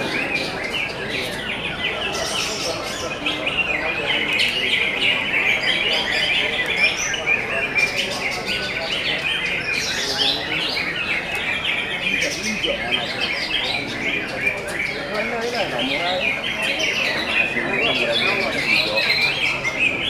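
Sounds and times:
chorus of birds chirping and trilling: 0.0s - 20.0s.

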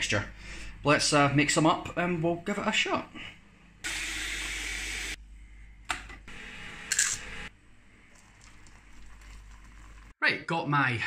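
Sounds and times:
powder pouring into plastic cup: 8.1s - 10.1s.

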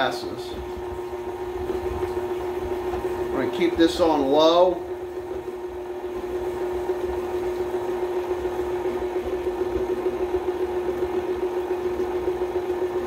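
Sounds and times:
stand mixer motor hum: 0.0s - 13.0s.

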